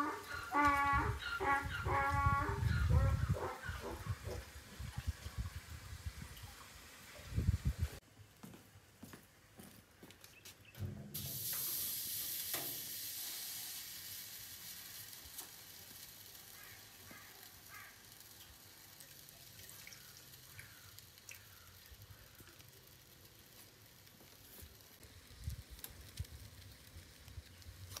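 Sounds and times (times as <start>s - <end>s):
hot oil sizzling in pot: 0.0s - 8.0s, 11.1s - 28.0s
faint ticks: 16.5s - 24.8s.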